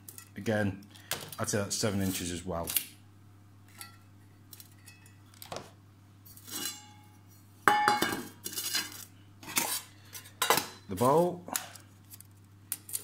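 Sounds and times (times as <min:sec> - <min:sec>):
pans clattering together: 0:07.7 - 0:08.9.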